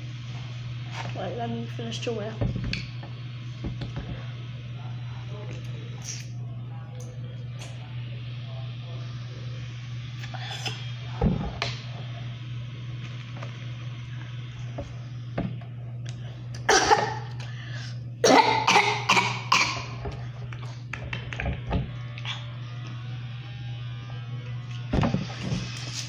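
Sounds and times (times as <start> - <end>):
low hum: 0.0 - 26.0
girl coughing: 16.7 - 17.3, 18.2 - 20.0.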